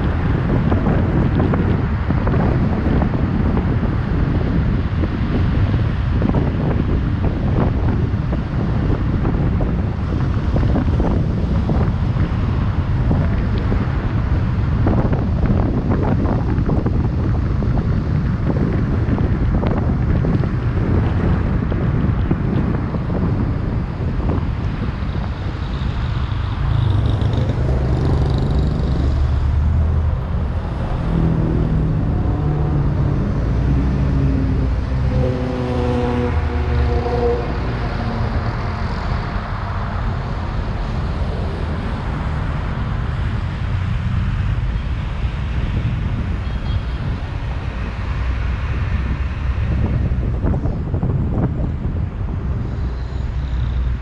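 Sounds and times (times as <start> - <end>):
car driving in traffic: 0.0 - 54.0
wind on microphone: 0.0 - 54.0
nearby vehicle engine hum: 24.2 - 54.0.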